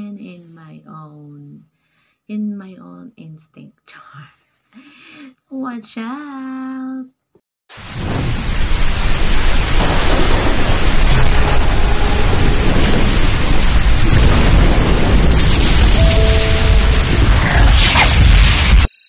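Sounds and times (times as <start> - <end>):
rush of bass-heavy noise: 7.8 - 18.9
brief steady tones: 15.9 - 17.4.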